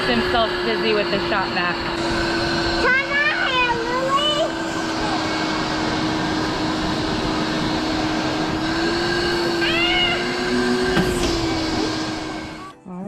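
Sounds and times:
shop vacuum blowing air: 0.0s - 12.7s
high vocal sound: 9.3s - 13.0s.

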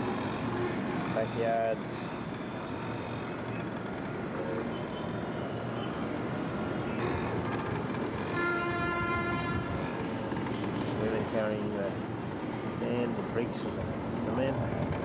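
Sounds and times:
town background noise: 0.0s - 15.0s
horn sounding: 8.3s - 9.8s.

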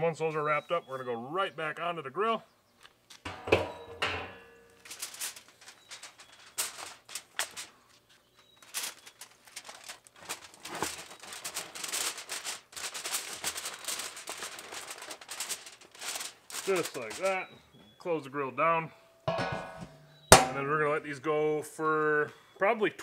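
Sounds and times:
aluminium pans clattering on grate: 3.3s - 7.7s, 16.2s - 17.5s, 19.3s - 20.8s
aluminium foil crinkling: 4.5s - 17.5s.

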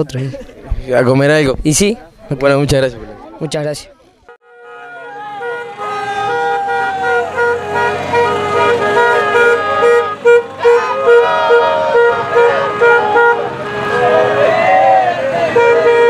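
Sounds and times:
car horns held long: 4.3s - 16.0s
rhythmic car horn beeping: 4.3s - 16.0s
shouts or noisemakers: 4.5s - 16.0s.

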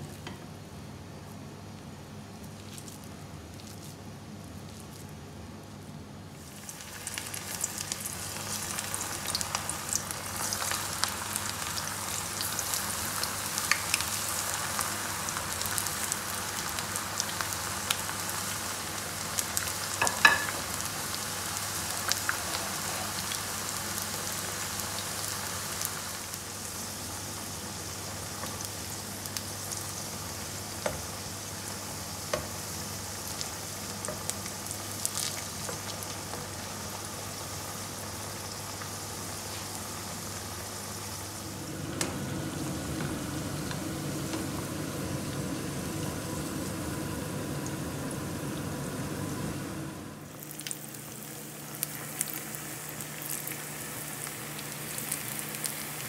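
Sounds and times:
food deep-frying in hot oil: 6.3s - 56.0s
oil crackles: 50.3s - 56.0s.

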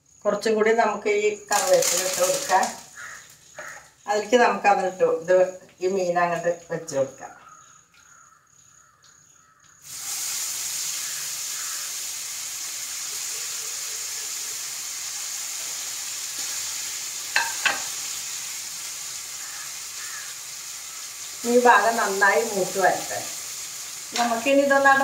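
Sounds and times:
fish sizzling in oil: 1.3s - 6.0s, 9.8s - 25.0s.

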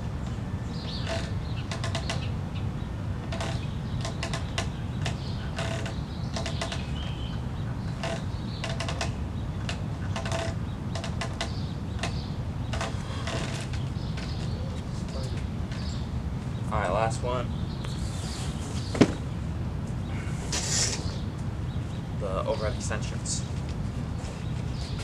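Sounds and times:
suspension straps creaking and clicking: 0.2s - 2.3s, 3.2s - 16.0s.

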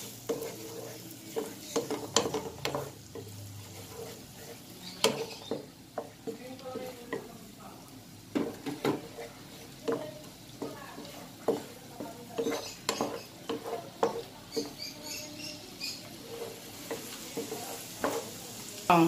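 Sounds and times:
wooden spatula scraping a pan: 0.0s - 7.3s, 8.3s - 18.6s
garlic sizzling in butter: 0.0s - 19.0s.

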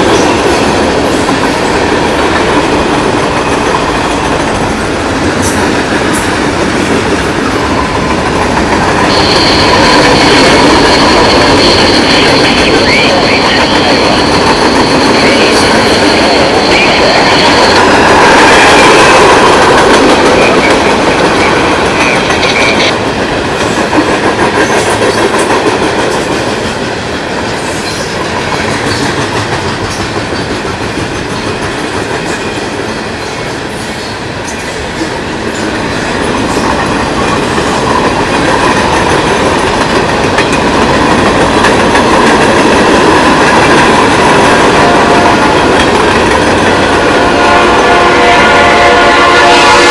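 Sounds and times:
clickety-clack over rail joints: 0.0s - 33.5s, 34.5s - 48.1s
steel wheels rolling on rail: 0.0s - 49.9s
high thin ringing tone: 9.1s - 18.0s.

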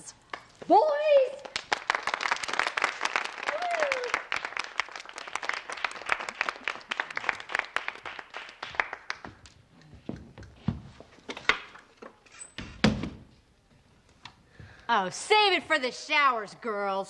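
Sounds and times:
small group clapping: 0.3s - 9.8s.

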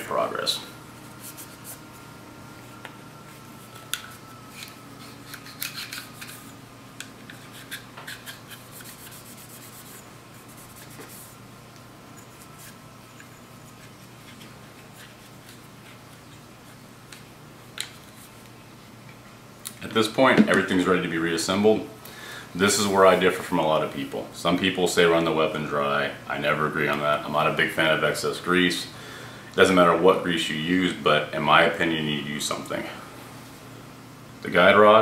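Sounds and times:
cloth rubbing on pistol frame: 0.9s - 2.2s, 7.3s - 11.4s.

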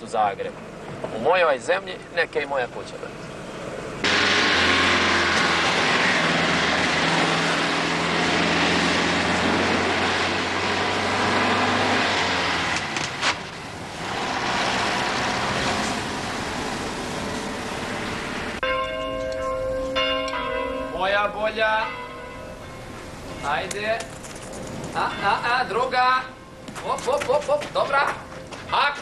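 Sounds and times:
tyre and road noise: 0.0s - 29.0s
car engine hum: 2.7s - 18.7s.

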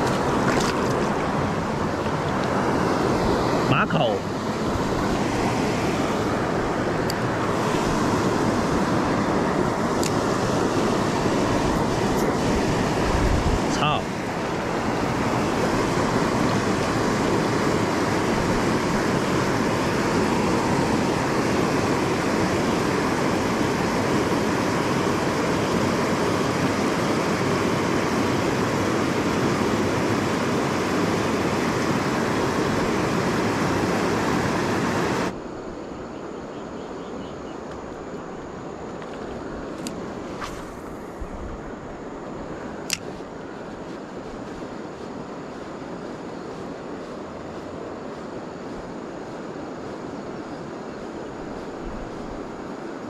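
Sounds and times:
water rushing over a weir: 0.0s - 35.4s.

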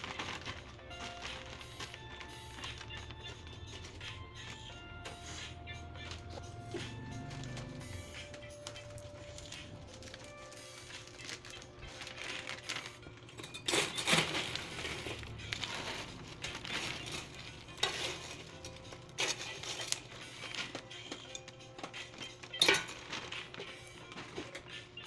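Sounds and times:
pork rinds rattling in metal basin: 13.3s - 20.8s, 21.8s - 24.6s.

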